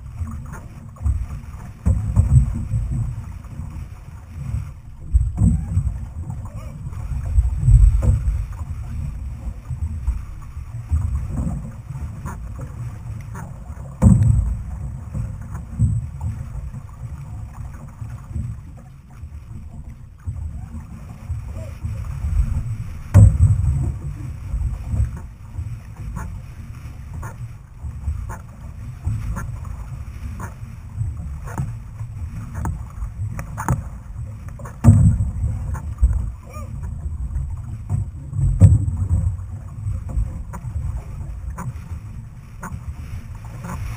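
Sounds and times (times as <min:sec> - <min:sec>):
water swishing: 0:00.0 - 0:43.9
wind buffeting microphone: 0:01.0 - 0:18.6.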